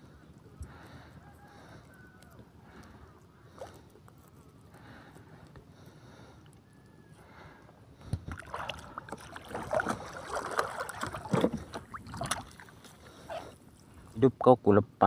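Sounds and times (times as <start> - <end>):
seawater splashing and sloshing: 8.2 - 13.5.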